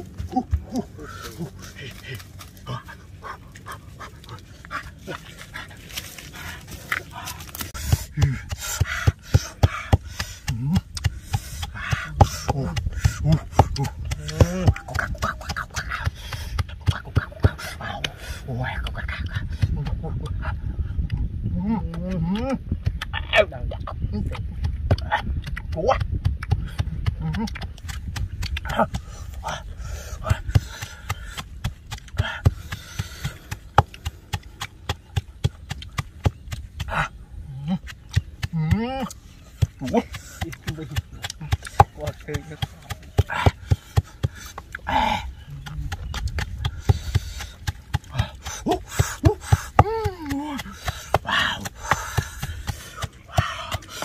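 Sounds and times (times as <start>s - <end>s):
pestle pounding in mortar: 7.8s - 18.1s, 24.2s - 37.1s, 37.8s - 54.0s.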